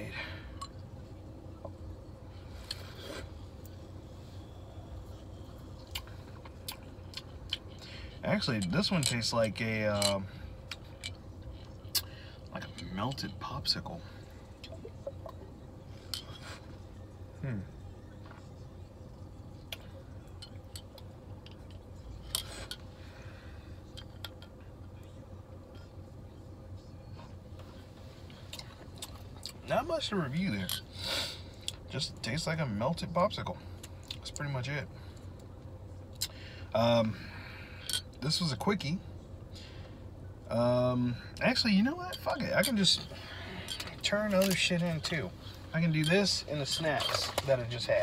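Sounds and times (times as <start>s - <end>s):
low steady hum: 0.0s - 48.0s.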